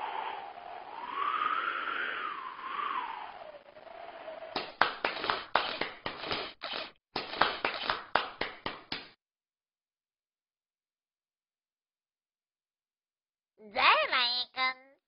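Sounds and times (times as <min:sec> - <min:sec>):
falling whistle glide: 0:00.0 - 0:04.6
sharp popping cracks: 0:04.6 - 0:09.2.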